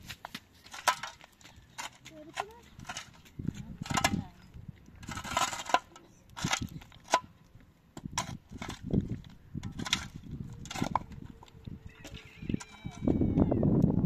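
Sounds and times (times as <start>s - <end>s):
digging tool striking stony soil: 0.0s - 4.4s, 5.0s - 7.4s, 8.0s - 11.2s.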